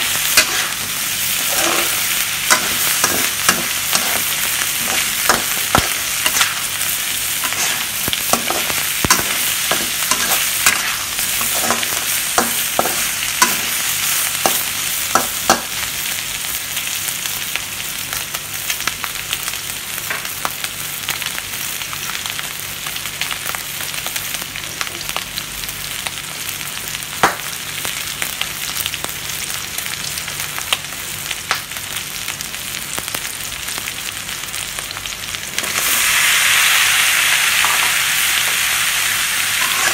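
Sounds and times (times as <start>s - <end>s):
meat and onions sizzling in wok: 0.0s - 39.9s
metal spatula scraping pan: 0.4s - 0.8s, 1.4s - 6.7s, 7.4s - 13.8s, 39.6s - 39.9s.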